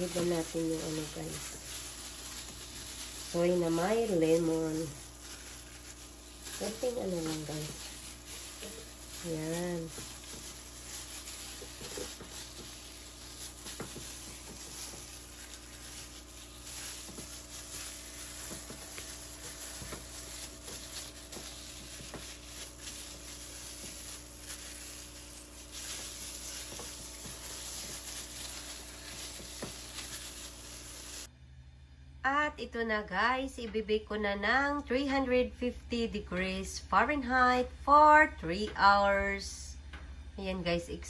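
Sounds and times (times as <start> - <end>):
wet rubbing on meat: 0.0 - 31.3.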